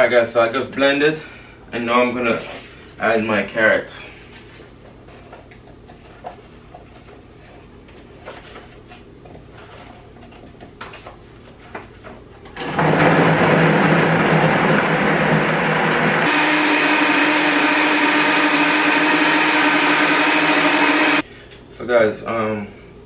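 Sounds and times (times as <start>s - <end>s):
blender running: 12.6s - 21.2s.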